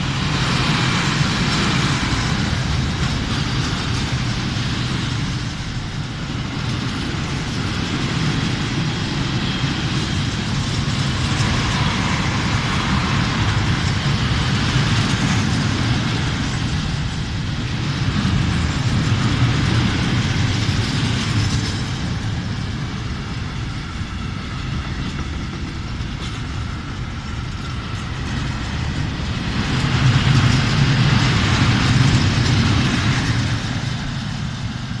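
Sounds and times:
freight train wheels rumbling: 0.0 - 35.0.

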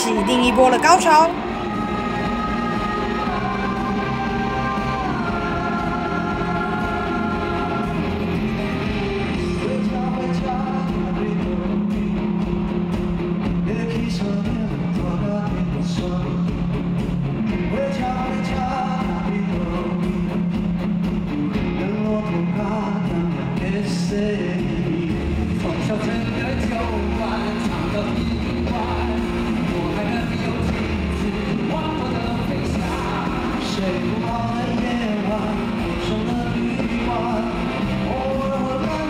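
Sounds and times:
men singing: 0.0 - 12.4, 21.8 - 39.0
electric guitar: 0.0 - 39.0
rock band playing: 0.0 - 39.0.

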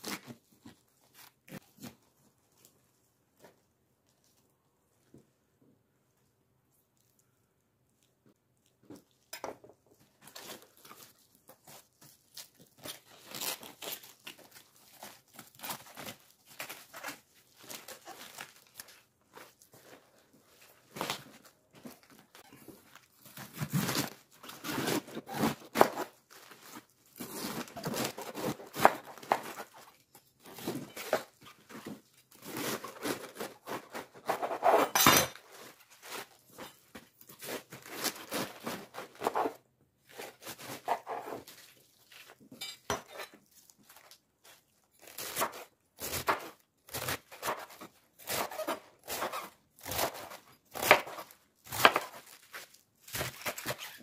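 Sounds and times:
cabbage leaves crunching and tearing: 10.3 - 20.2, 43.5 - 54.0.

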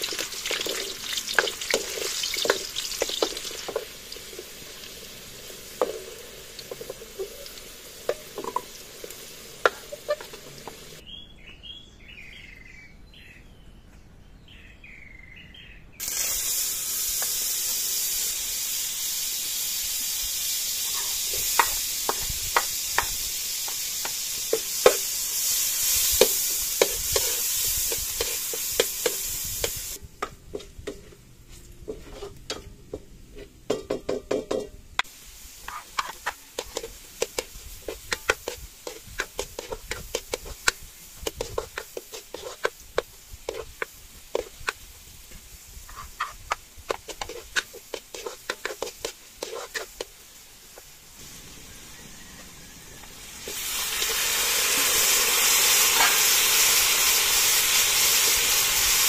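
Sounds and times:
garlic and onions frying in oil: 0.0 - 11.0, 16.0 - 59.0
ladle scraping and tapping wok: 0.0 - 11.0, 20.8 - 50.9, 53.0 - 58.9
meat sizzling in hot oil: 0.0 - 11.0, 16.0 - 30.0, 35.0 - 59.0.

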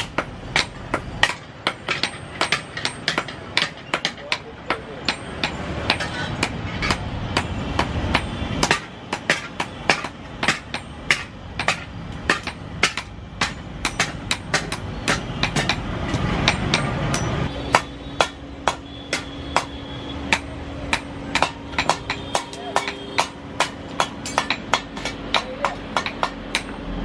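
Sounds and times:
hammer beating metal on anvil: 0.0 - 26.9.

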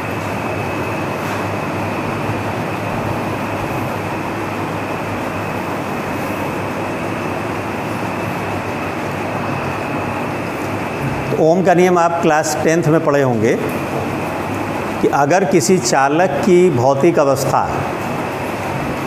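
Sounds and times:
faint high whine: 0.0 - 19.0
hum and hiss: 0.0 - 19.0.

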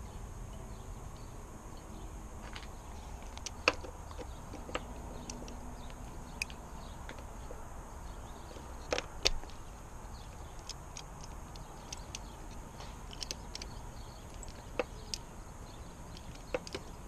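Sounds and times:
low background noise: 0.0 - 17.0
metal socket clicking against engine: 3.2 - 7.3, 10.2 - 17.0.

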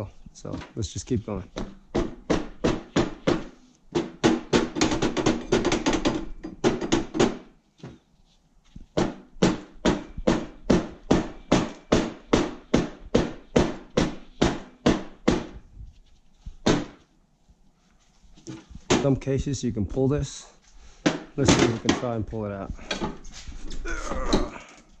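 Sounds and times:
rubber mallet hammering steel axle: 1.6 - 7.5, 9.0 - 15.6.

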